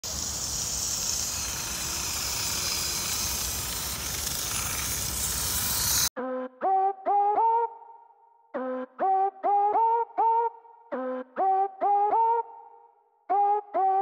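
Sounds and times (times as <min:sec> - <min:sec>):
outdoor noise: 0:00.0 - 0:14.0
tracked robot rolling over paving: 0:00.2 - 0:06.1.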